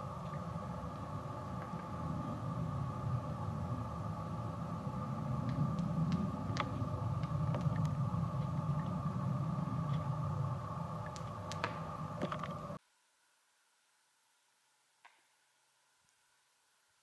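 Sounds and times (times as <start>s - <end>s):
embers crackling and popping: 0.0s - 12.8s
fire rushing: 0.0s - 12.8s.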